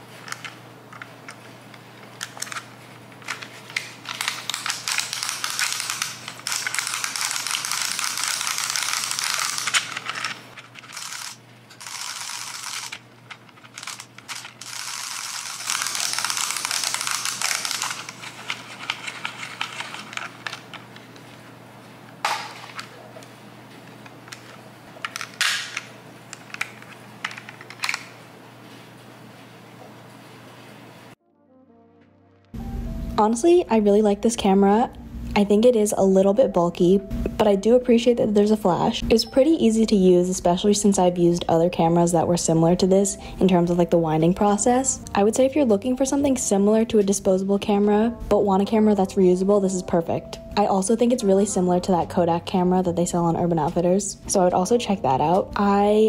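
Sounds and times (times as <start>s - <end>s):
camera film winder ratcheting: 4.2s - 18.1s.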